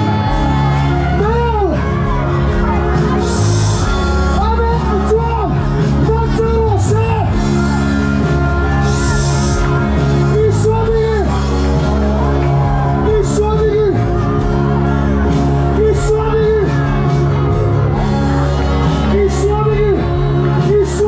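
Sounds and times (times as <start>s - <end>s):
held worship music chords: 0.0s - 21.0s.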